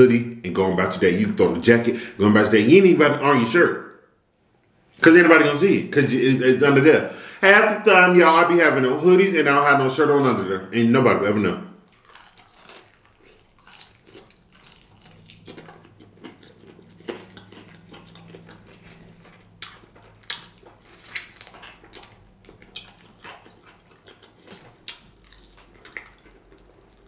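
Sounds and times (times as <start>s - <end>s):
chewing fried chicken: 11.9s - 27.0s.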